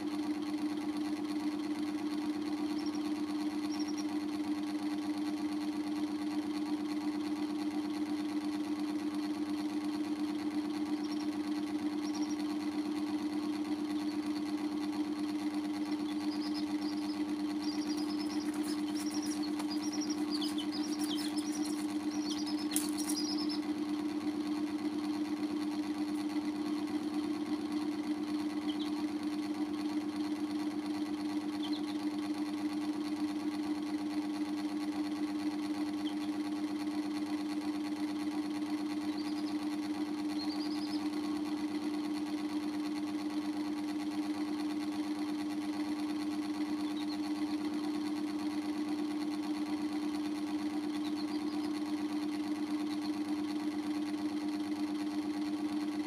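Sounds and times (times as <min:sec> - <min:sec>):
steady hum: 0:00.0 - 0:56.0
chicks peeping: 0:02.6 - 0:04.2, 0:09.9 - 0:30.2, 0:31.3 - 0:32.3, 0:38.9 - 0:41.6, 0:46.7 - 0:47.5, 0:50.9 - 0:51.9.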